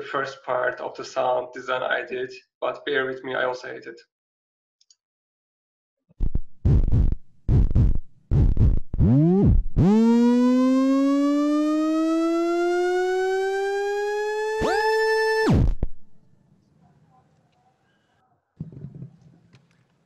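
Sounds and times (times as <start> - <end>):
deep synth pulses: 6.2 - 16.2
buzzy synth tone rising: 6.3 - 16.2
higher synth tone: 9.0 - 15.7.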